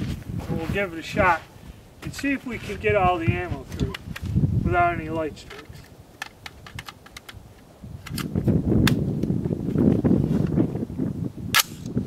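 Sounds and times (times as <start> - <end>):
rifle metallic clicks and snaps: 5.4 - 7.4, 8.0 - 9.0, 11.6 - 11.9.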